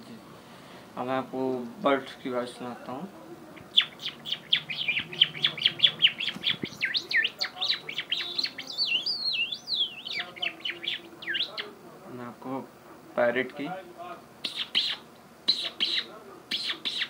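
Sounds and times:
man imitating birdsong: 3.6s - 11.7s, 14.4s - 17.0s.

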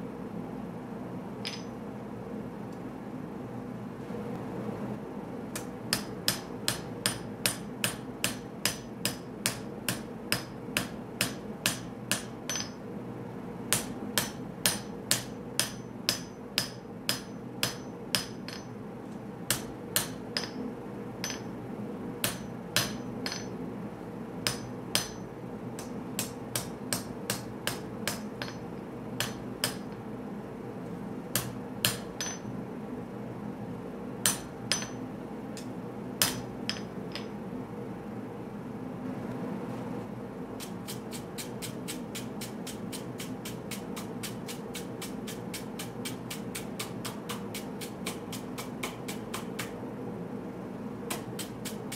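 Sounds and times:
hammer striking hot steel on anvil: 1.4s - 1.8s, 5.6s - 12.9s, 13.7s - 18.8s, 19.5s - 21.6s, 22.2s - 23.6s, 24.4s - 30.0s, 31.3s - 32.6s, 34.2s - 37.4s, 40.6s - 49.8s, 51.1s - 51.9s.

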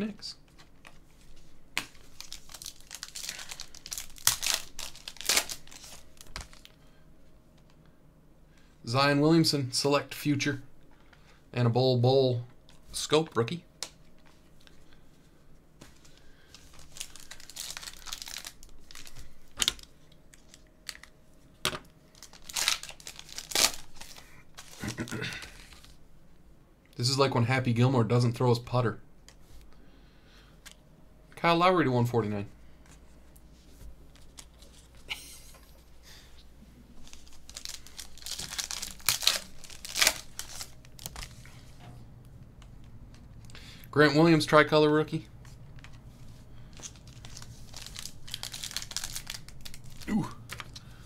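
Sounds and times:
foil wrapper crinkling and tearing: 1.8s - 6.8s, 16.5s - 21.1s, 22.1s - 26.0s, 37.0s - 41.5s, 46.6s - 51.0s.

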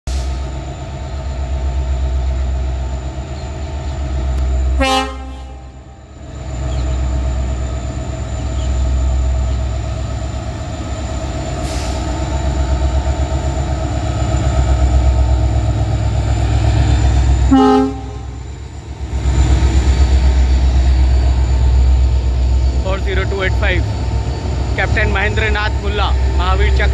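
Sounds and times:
locomotive engines rumbling: 0.1s - 26.9s
train horn blasts: 4.8s - 6.0s, 17.5s - 18.4s.

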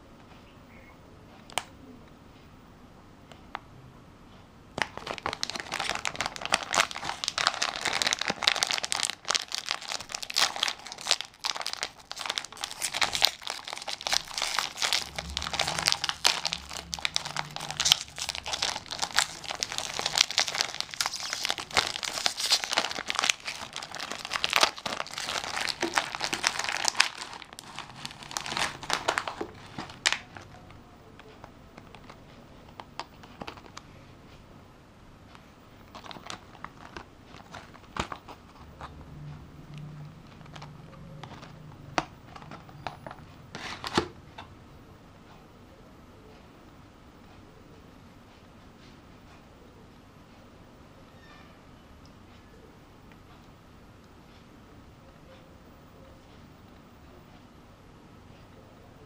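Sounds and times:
plastic wrapper crinkling: 4.8s - 33.8s, 35.8s - 39.0s, 39.7s - 44.2s.

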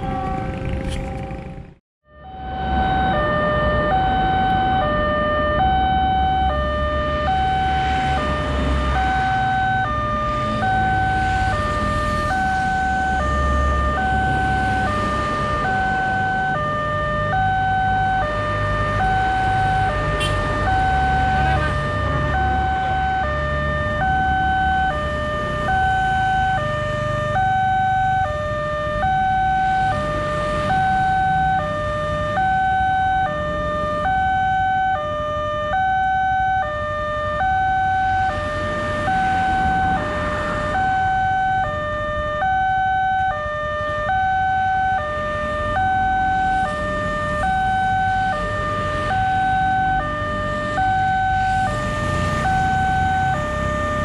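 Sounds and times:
level crossing two-tone alarm: 2.1s - 54.0s.

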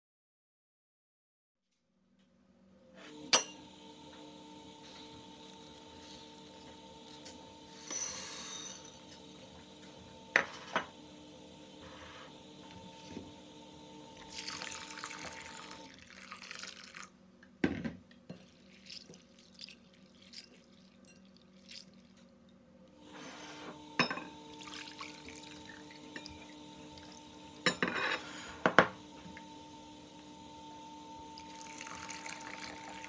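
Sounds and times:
water pouring into glass bowl: 14.3s - 17.1s, 18.3s - 22.2s, 24.5s - 27.3s, 31.4s - 33.0s.

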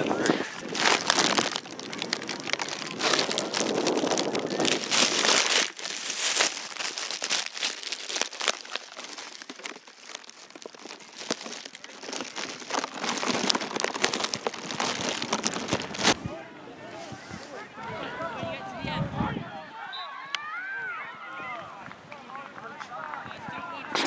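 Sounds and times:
covering crinkling against microphone: 0.0s - 16.2s.

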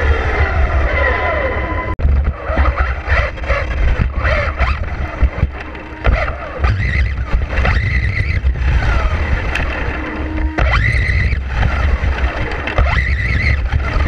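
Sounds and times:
electric motor whining: 0.0s - 14.0s
wind rumble: 0.0s - 14.0s
knocks from rough ride: 2.0s - 8.5s.

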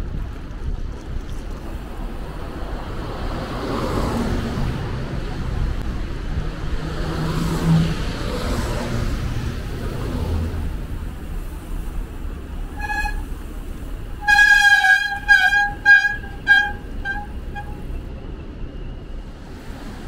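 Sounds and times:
street traffic: 0.0s - 20.0s
horn honking: 12.6s - 18.0s.

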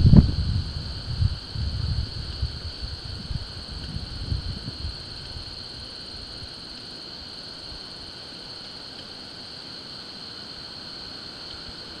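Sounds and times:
wind on microphone: 0.0s - 6.6s
fast pulsing insect trill: 0.0s - 12.0s.

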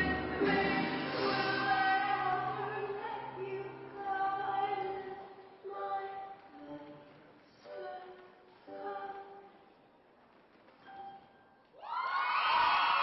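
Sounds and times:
woman singing over accompaniment: 0.0s - 9.4s.

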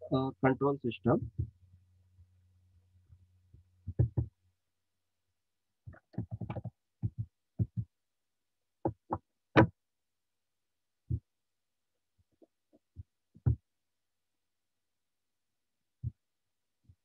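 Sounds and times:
desk and mouse knocks: 3.9s - 4.3s.

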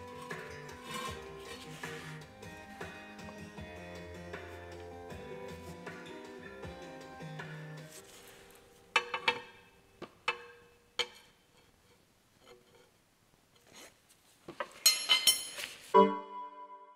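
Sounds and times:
background music: 0.0s - 10.0s, 15.9s - 16.9s.

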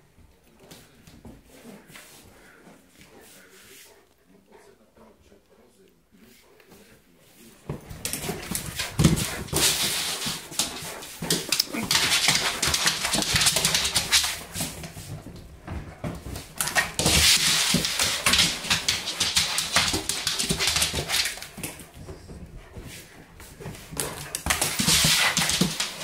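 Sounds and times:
dog claws clicking on tiles: 8.0s - 14.9s, 16.5s - 21.9s, 23.9s - 26.0s.

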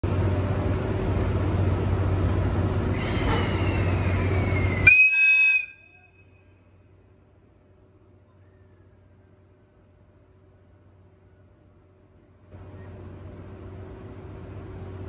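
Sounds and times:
high-pitched locomotive whistle: 3.0s - 6.9s
steady low hum: 6.0s - 15.0s.

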